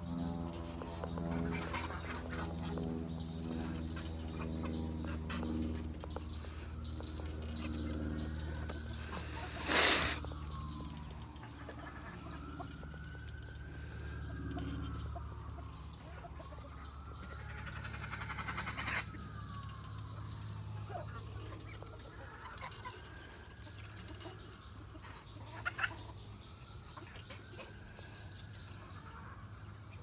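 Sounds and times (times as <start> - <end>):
distant siren wailing: 0.0 - 30.0
hen clucking: 17.4 - 19.2, 24.3 - 26.2.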